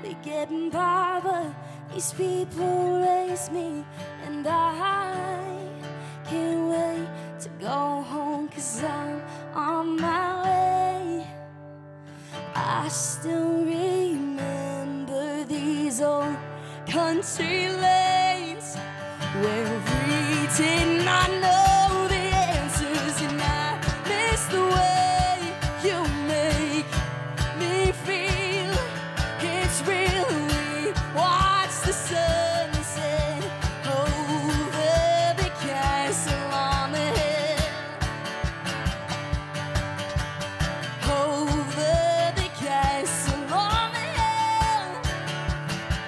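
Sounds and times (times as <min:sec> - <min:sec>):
woman singing: 0:00.0 - 0:11.7, 0:12.3 - 0:38.6, 0:40.8 - 0:46.0
strummed acoustic guitar: 0:00.0 - 0:46.0
cajon beat: 0:19.5 - 0:46.0.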